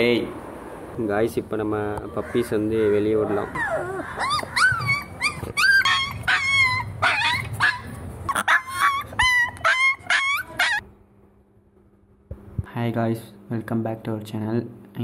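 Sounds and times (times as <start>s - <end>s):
puppy yipping and yelping: 2.0s - 10.8s.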